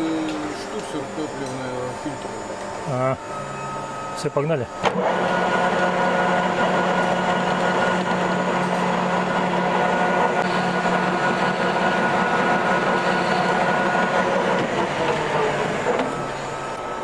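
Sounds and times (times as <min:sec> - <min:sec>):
metal lathe running: 0:00.0 - 0:17.0.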